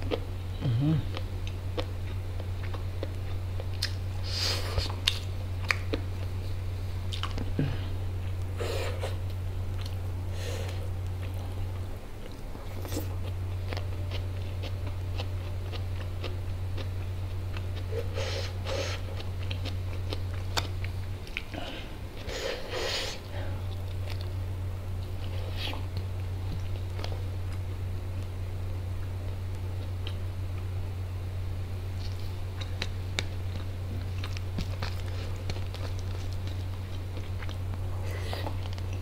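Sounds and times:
steady low hum: 0.0s - 39.0s
chewing and biting food: 1.0s - 6.4s, 7.0s - 7.6s, 10.6s - 21.6s, 32.0s - 39.0s.

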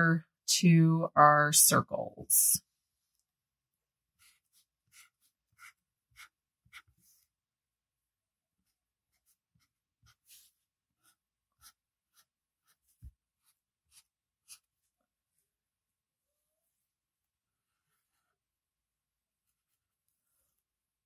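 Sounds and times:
marker scratching on paper: 4.2s - 7.3s, 8.6s - 15.0s.

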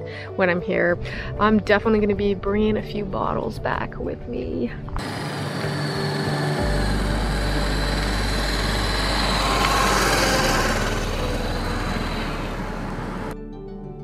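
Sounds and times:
motorcycle engine passing: 5.0s - 13.4s
thin high steady whine: 5.0s - 13.4s.

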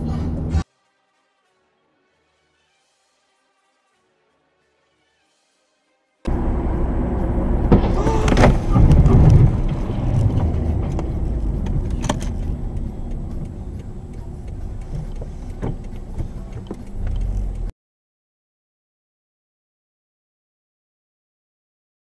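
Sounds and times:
car road and engine rumble: 6.3s - 17.7s.

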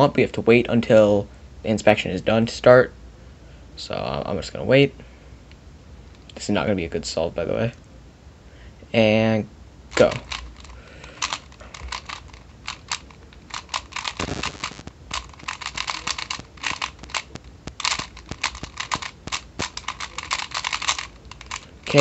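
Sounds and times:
puzzle cube plastic clicks: 9.9s - 22.0s.

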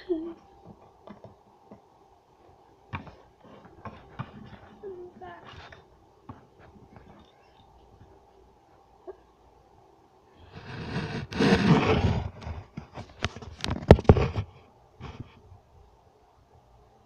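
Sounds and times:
camera handling rustling scrape: 10.6s - 15.2s.

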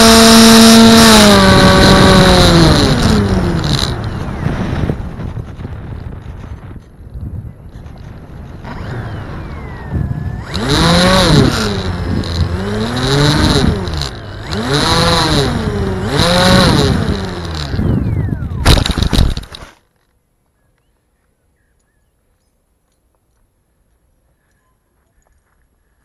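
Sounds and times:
model plane motor whine: 0.0s - 4.8s, 8.5s - 18.6s
wind rushing over microphone: 0.0s - 19.6s.

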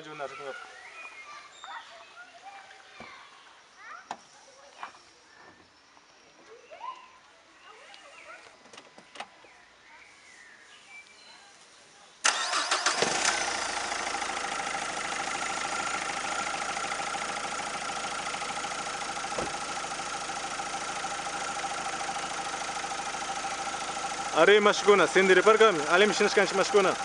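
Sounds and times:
diesel engine idling: 12.3s - 27.0s
starter motor cranking: 12.3s - 27.0s.

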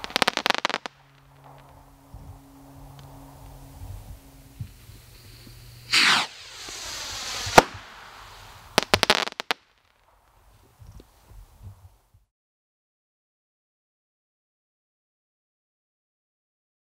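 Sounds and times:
firework bang: 0.0s - 11.3s
crackling pops: 0.0s - 11.9s
firework rocket whooshing: 0.0s - 11.9s.

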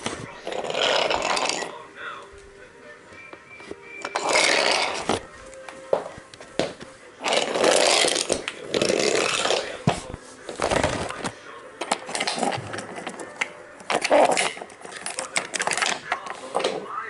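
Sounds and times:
wooden toy track scraping: 0.5s - 1.7s, 4.1s - 5.2s, 7.2s - 9.7s.

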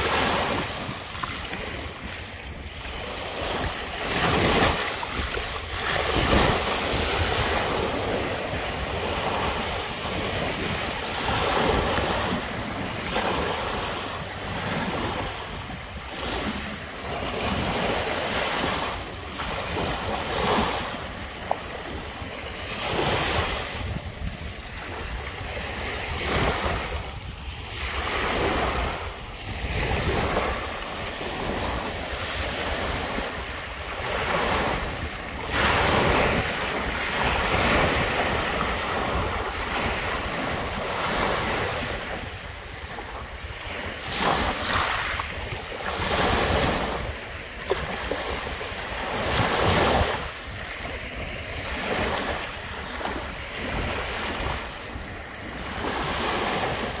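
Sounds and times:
small waves breaking on shore: 0.0s - 57.0s
wind rumbling on microphone: 0.0s - 57.0s.

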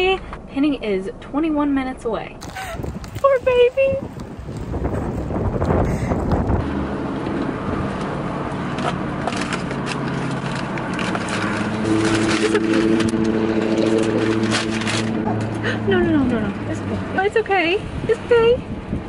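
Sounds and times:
car engine hum: 0.0s - 19.0s
wind buffeting microphone: 2.4s - 9.2s, 11.1s - 19.0s
paper and plastic crinkling: 9.2s - 15.2s.

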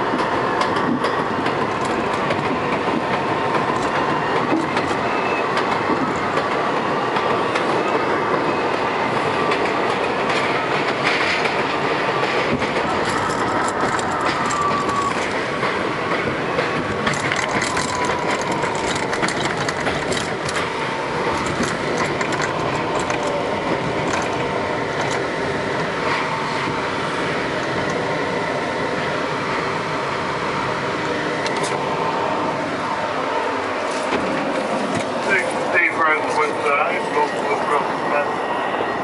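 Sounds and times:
train rail and wheel noise: 0.0s - 39.0s
clicks from the rails: 12.4s - 20.7s.

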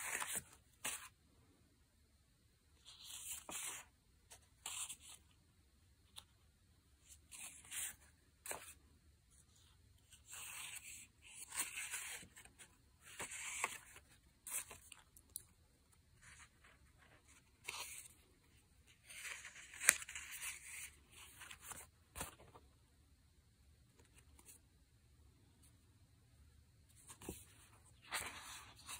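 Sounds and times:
paper rustling: 0.0s - 1.1s, 2.8s - 5.2s, 10.1s - 15.3s, 19.0s - 22.6s.

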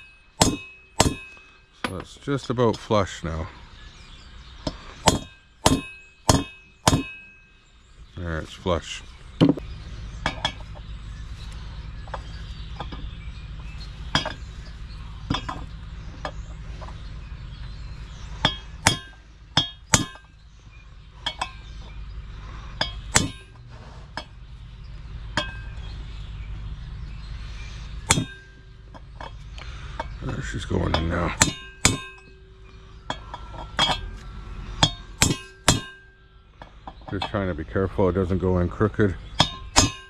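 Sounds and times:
hammer tapping metal driver: 0.0s - 2.0s.

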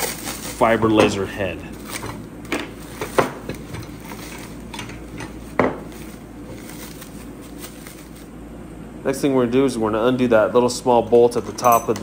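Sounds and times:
plastic wrap crinkling: 0.0s - 8.4s.

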